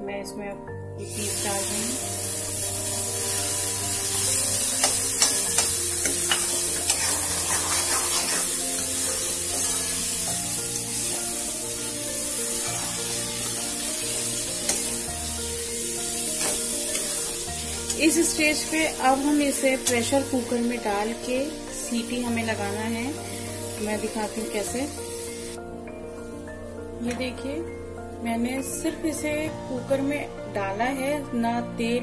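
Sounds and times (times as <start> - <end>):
background music: 0.0 - 32.0
food sizzling in a pan: 1.0 - 30.1
metal spatula scraping pan: 3.2 - 10.0.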